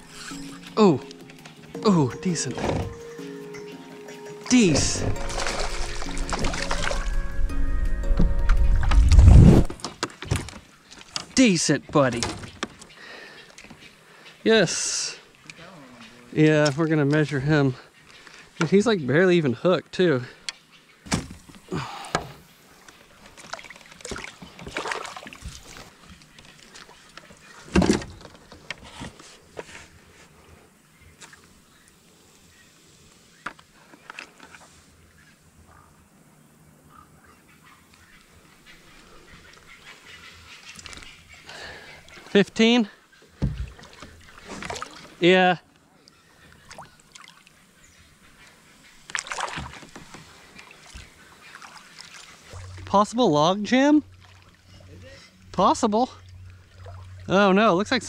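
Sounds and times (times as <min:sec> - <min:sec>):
faint water sounds: 0:00.0 - 0:07.5, 0:09.6 - 0:58.0
water splashing: 0:04.5 - 0:07.3, 0:23.2 - 0:27.8, 0:43.4 - 0:45.3, 0:46.6 - 0:47.7, 0:48.9 - 0:58.0
fishing gear knocking and rustling: 0:04.6 - 0:07.2
hollow thump on plastic kayak: 0:43.4 - 0:43.8.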